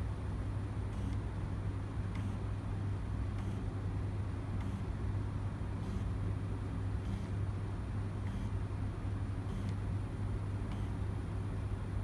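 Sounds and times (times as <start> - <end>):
stepper motors humming: 9.4 - 10.0.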